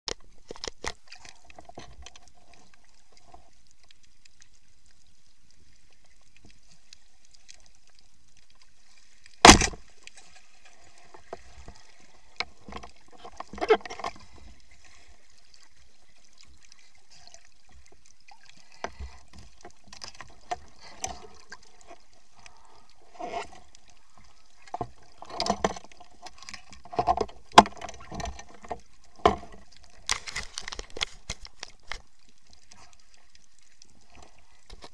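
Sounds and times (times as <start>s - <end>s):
faint underwater hiss: 2.2s - 13.4s, 14.1s - 25.2s.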